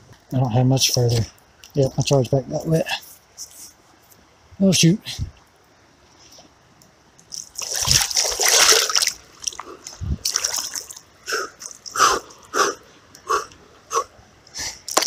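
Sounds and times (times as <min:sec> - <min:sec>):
water splashing: 0:07.2 - 0:12.4
sharp gasping breaths: 0:11.2 - 0:14.9.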